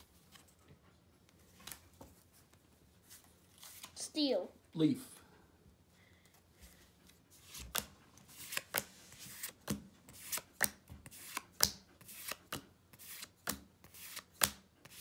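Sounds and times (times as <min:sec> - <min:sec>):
cards clicking as flipped: 0:07.5 - 0:14.6.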